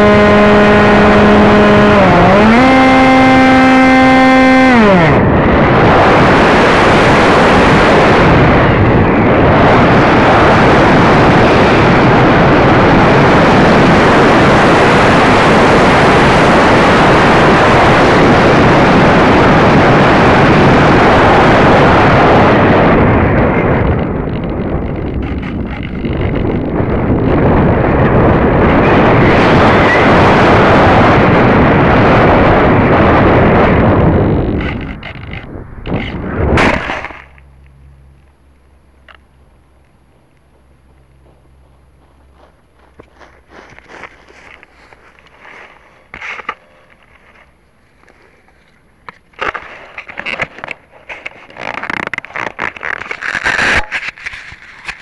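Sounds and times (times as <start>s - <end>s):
wind rushing over microphone: 0.0s - 55.0s
faint low hum: 33.8s - 51.5s
sharp clicks and knocks: 34.5s - 37.5s
plane scraping through grass: 42.4s - 48.4s.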